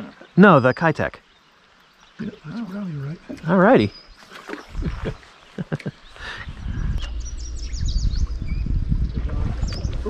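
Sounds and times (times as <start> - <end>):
small bird chirping: 0.3 - 10.0
low rumble on microphone: 6.4 - 10.0.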